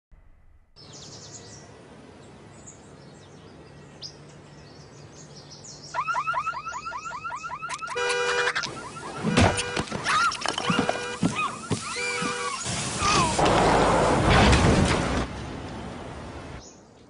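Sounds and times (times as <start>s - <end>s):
birds chirping: 0.8s - 12.9s
car alarm whooping and beeping: 6.0s - 12.6s.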